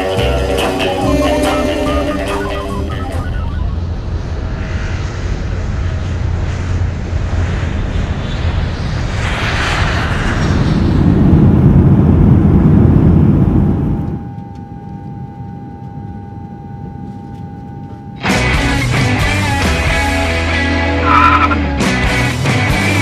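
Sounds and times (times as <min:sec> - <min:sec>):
cabin hum: 0:13.6 - 0:18.3
faint steady tone: 0:13.9 - 0:18.2.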